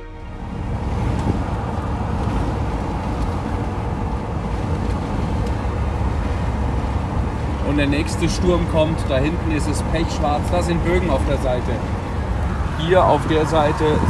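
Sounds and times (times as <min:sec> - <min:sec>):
engine and road noise inside vehicle: 0:00.0 - 0:14.0.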